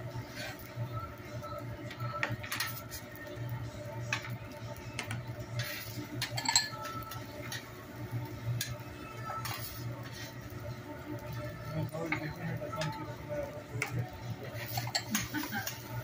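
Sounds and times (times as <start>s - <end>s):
metal spatula clinking on griddle: 6.2s - 7.7s.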